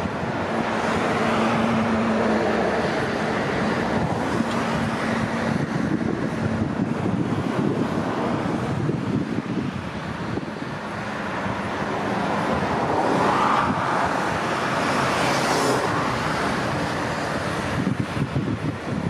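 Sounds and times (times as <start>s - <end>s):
highway traffic rushing: 0.0s - 19.0s
wind buffeting microphone: 0.0s - 19.0s.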